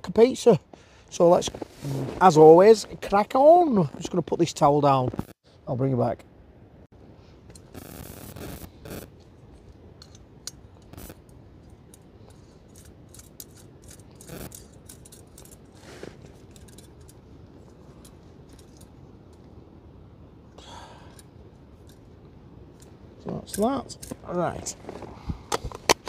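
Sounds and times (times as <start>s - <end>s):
light clicks taps and scrapes: 9.2s - 19.5s
rustling: 12.3s - 19.5s.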